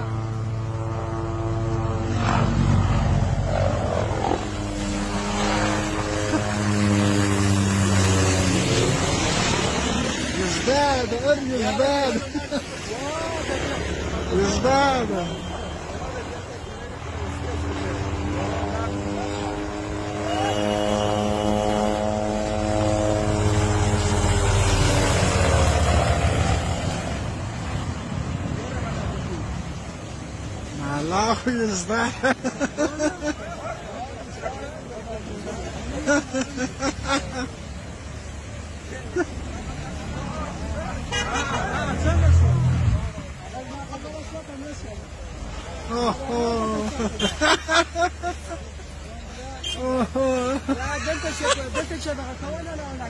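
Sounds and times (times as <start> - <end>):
helicopter rotor chop: 2.1 - 11.2
helicopter engine whine: 2.7 - 10.0.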